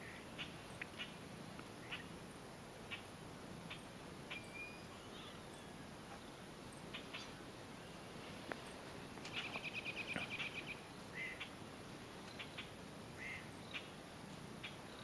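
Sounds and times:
songbird chattering trill: 1.8s - 2.2s, 3.7s - 5.8s, 6.8s - 7.4s, 9.3s - 11.6s, 12.3s - 14.0s.

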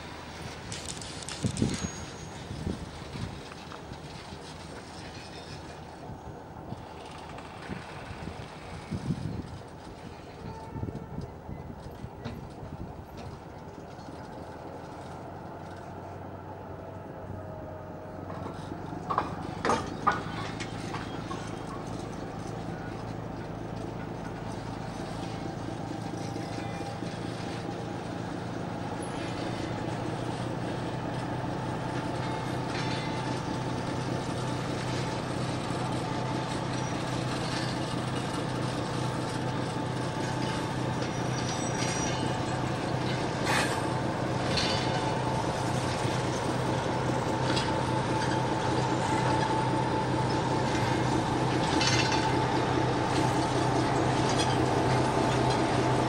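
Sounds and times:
freight wagons clanking: 0.0s - 17.0s, 17.6s - 56.0s
diesel locomotive running: 0.0s - 56.0s
thin high squeal: 1.1s - 2.6s, 40.4s - 43.9s.

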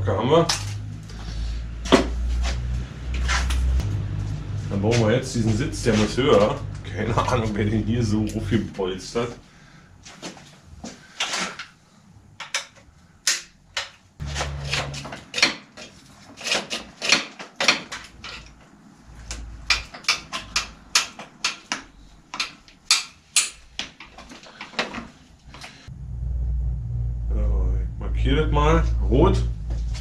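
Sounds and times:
dull low thumps: 3.6s - 8.1s, 25.9s - 30.0s.

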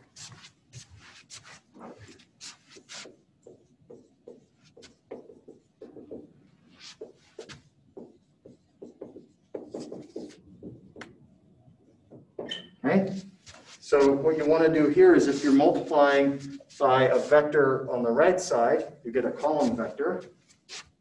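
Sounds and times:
marker writing on board: 0.0s - 11.2s, 12.0s - 12.7s, 16.6s - 17.3s, 19.4s - 21.0s.

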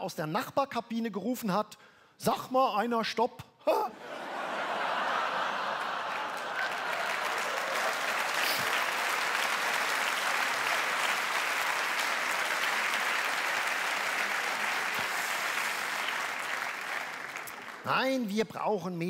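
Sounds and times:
audience applauding: 4.2s - 18.2s.

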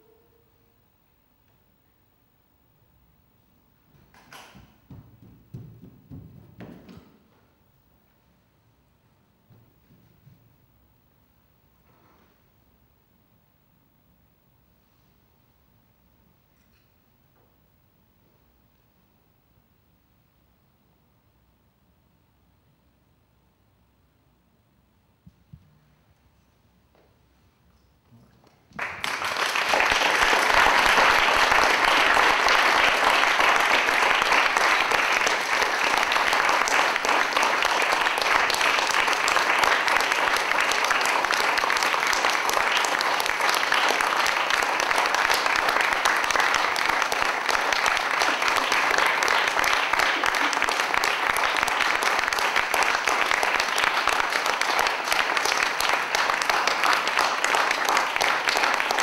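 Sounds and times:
audience applauding: 28.8s - 59.0s.

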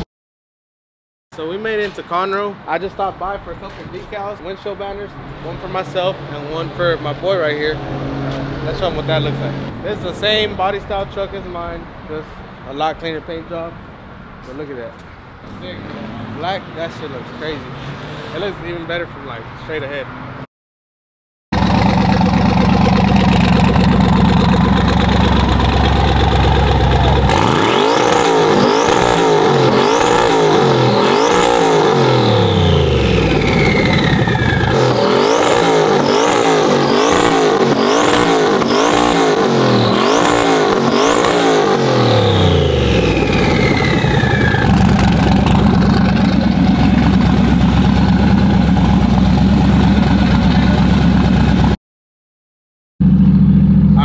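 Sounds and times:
pickup engine revving: 5.8s - 10.8s, 21.6s - 51.8s
falling turbo whine: 21.6s - 51.8s.

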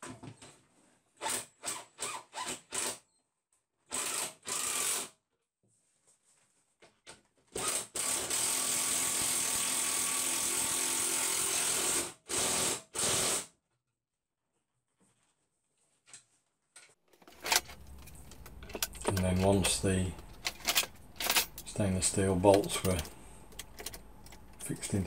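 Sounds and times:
cordless drill driving bolts: 3.9s - 5.1s, 7.6s - 13.4s, 17.2s - 25.0s.

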